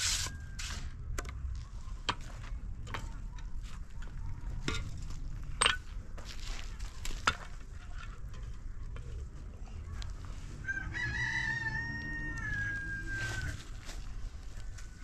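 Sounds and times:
rooster crowing: 10.6 - 13.8.

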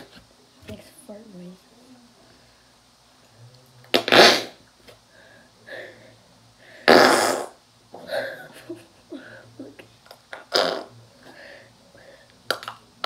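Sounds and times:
fart-like bursts: 3.9 - 4.6, 6.8 - 7.6, 10.4 - 11.0.

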